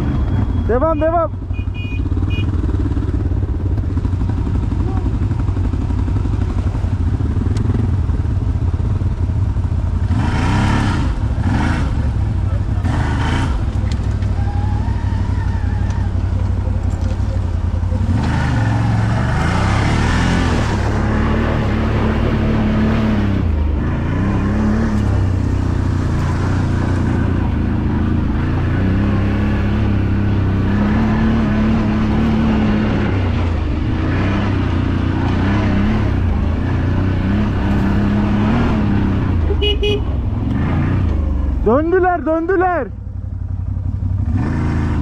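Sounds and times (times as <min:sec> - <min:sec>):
quad bike engine revving: 0:00.0 - 0:42.8, 0:43.4 - 0:45.0.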